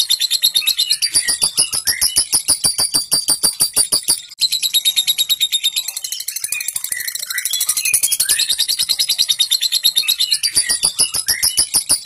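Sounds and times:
lovebird rasping chatter: 0.4 - 4.3, 8.3 - 12.0.

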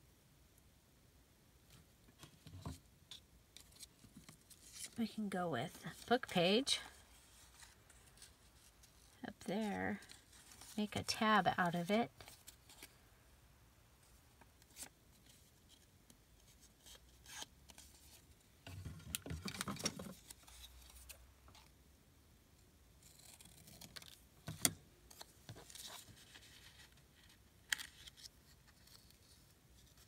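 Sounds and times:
paper rustling: 5.7 - 10.8.

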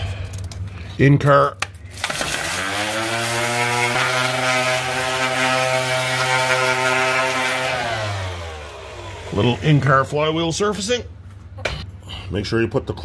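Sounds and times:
angle grinder whining: 2.0 - 10.4.

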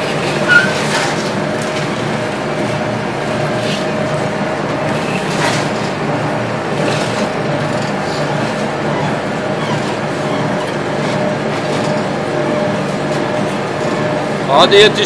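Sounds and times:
press motor and gearbox drone: 4.7 - 14.3.

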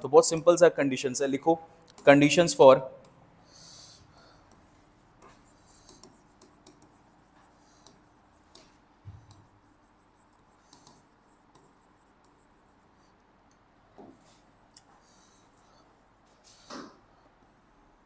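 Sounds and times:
pen scratching while handwriting: 3.5 - 12.9.

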